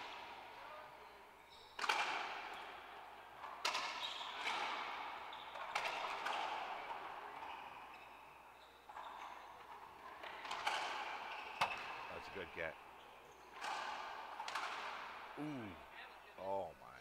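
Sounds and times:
racquetball smacks: 13.6 - 15.3.

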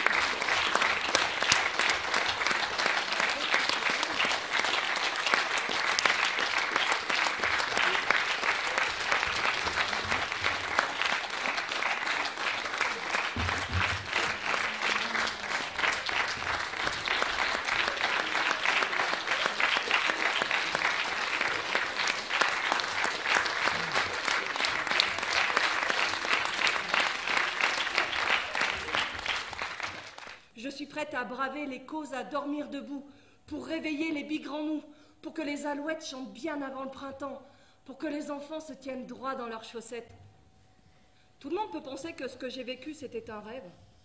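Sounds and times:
audience applauding: 0.0 - 30.4.

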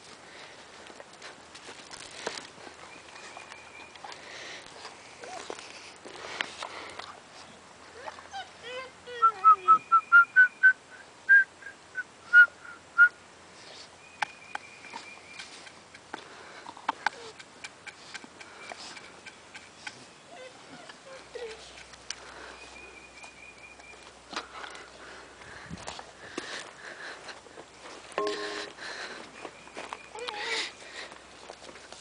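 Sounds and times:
light clicks and rustles: 0.0 - 7.4
person whistling: 12.3 - 13.1.

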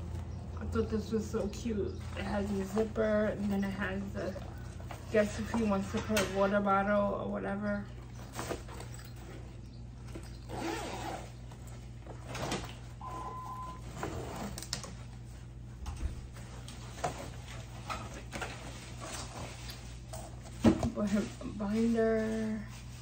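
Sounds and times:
steady low hum: 0.0 - 23.0
rustling of bags: 1.0 - 5.9.

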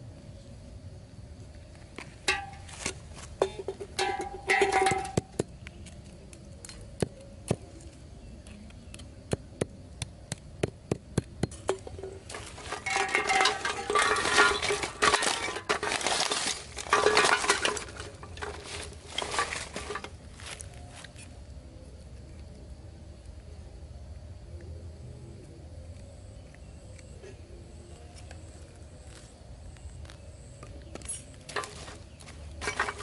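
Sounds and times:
cans scraping and rattling: 2.3 - 5.3, 11.5 - 20.6, 31.5 - 33.0
cans clicking and clinking: 3.4 - 5.3, 11.5 - 20.1.

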